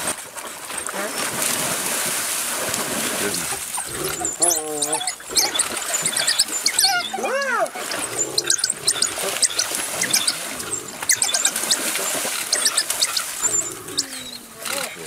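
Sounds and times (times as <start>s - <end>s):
high-pitched squeaky chirps and squeals: 3.8s - 15.0s.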